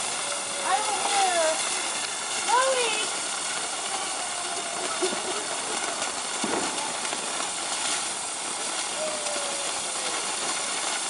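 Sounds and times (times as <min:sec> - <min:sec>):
firework hissing sparks: 0:00.0 - 0:11.0
small firework pops: 0:00.0 - 0:11.0.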